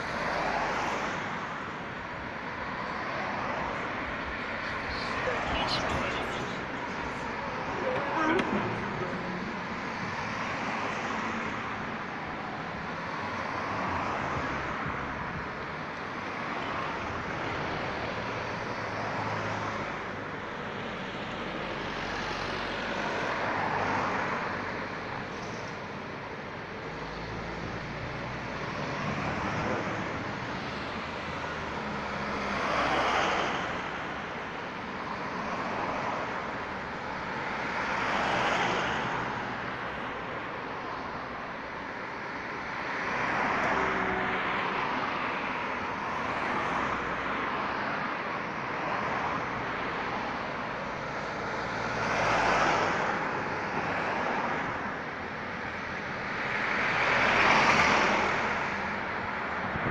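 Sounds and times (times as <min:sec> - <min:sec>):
cars passing: 0:00.0 - 0:59.9
truck engine hum: 0:03.3 - 0:11.3.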